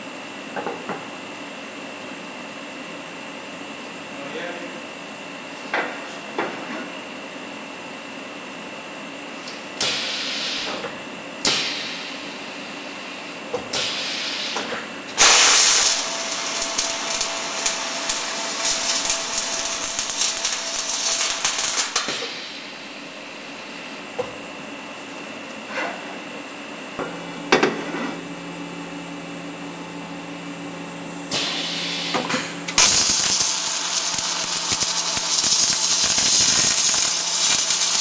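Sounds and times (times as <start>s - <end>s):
welding arc crackling and hissing: 9.8s - 10.8s, 11.4s - 13.1s, 13.7s - 22.9s, 31.2s - 38.0s.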